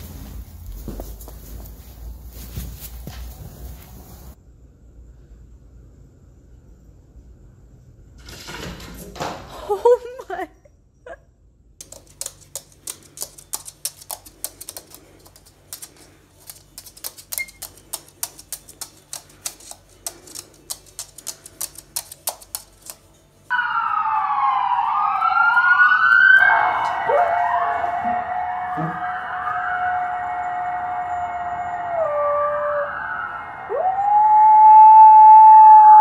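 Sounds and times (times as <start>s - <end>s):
bird claws tapping on floor: 11.8s - 23.1s
emergency sirens wailing: 23.5s - 36.0s.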